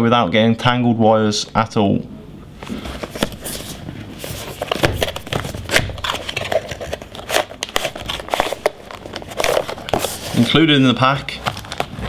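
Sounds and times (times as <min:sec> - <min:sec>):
cardboard scraping and rustling: 0:02.7 - 0:12.0.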